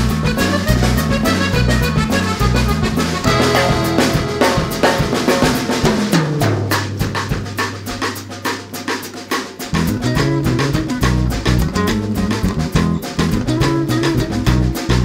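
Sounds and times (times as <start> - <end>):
bass line: 0.0 - 8.6, 9.8 - 15.0
steady drum beat: 0.0 - 15.0.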